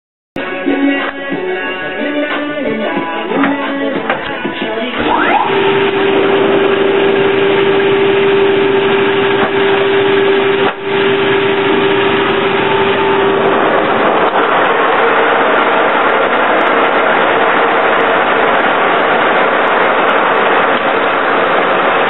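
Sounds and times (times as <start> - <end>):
dense machine noise: 3.4 - 22.0
lathe gear whine: 5.0 - 22.0.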